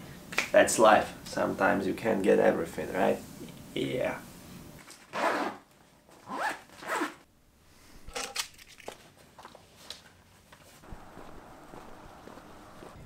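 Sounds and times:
rising zip-like pulls: 5.1 - 5.6, 6.2 - 7.2.

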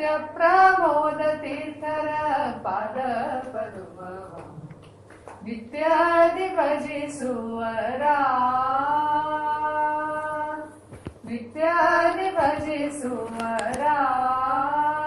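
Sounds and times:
woman singing devotional song: 0.0 - 4.7, 5.4 - 15.0.

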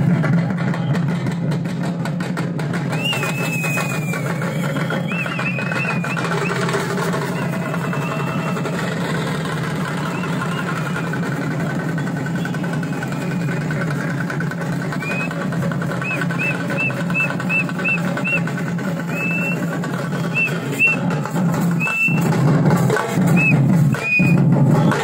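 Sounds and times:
frame drums fast roll: 0.0 - 25.0
short high chirps: 15.0 - 15.3, 16.0 - 18.4, 19.1 - 19.6, 21.8 - 22.3, 23.4 - 24.4.

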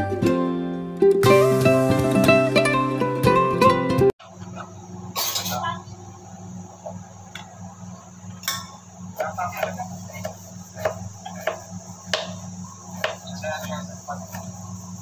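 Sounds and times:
knife chopping on cutting board: 9.2 - 12.4, 13.0 - 14.5.

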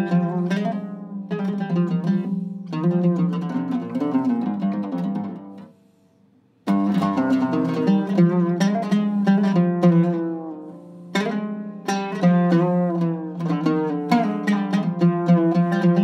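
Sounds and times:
oud plucked melody: 0.0 - 6.0, 6.6 - 16.0.

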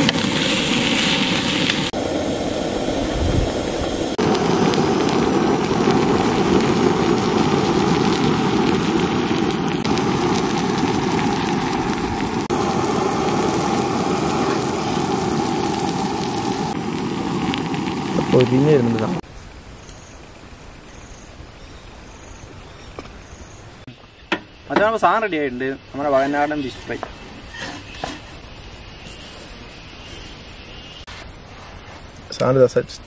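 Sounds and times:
fish sizzling in hot oil: 0.0 - 19.2, 25.9 - 32.2.

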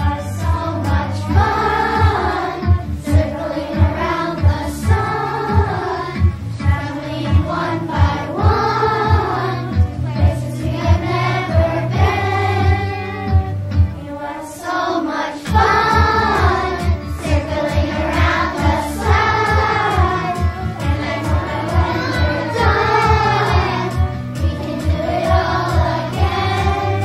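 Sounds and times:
steady drum beat: 0.0 - 9.9, 15.5 - 27.0
children's choir singing: 0.0 - 27.0
instrumental accompaniment: 0.0 - 27.0.

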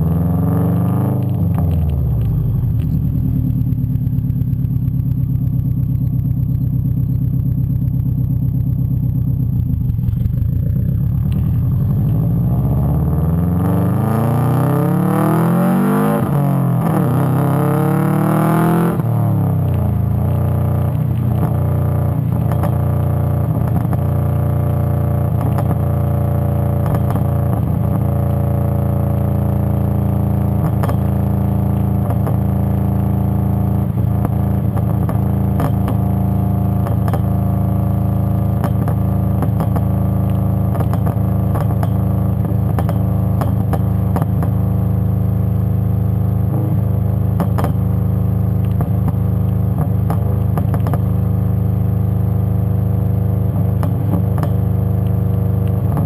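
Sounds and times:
deep exhaust drone: 0.0 - 56.0.

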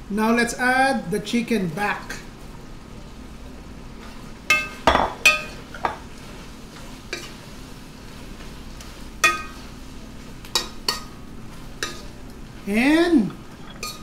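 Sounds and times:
metal ladle clinking on pan: 4.5 - 6.0, 9.2 - 9.6, 13.7 - 14.0.

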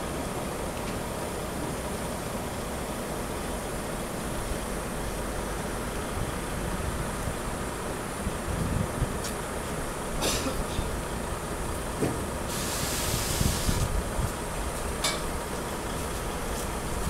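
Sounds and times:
air brake hiss: 12.5 - 13.9.

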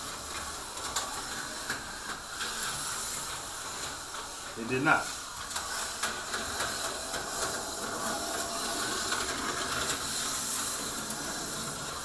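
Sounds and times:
slot car motor whirring: 5.4 - 12.0.

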